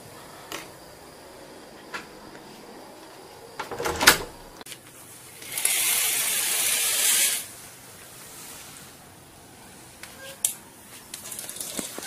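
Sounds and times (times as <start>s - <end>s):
metal door handle and latch clicking: 3.6s - 4.5s
curtain sliding along rail: 5.4s - 7.6s.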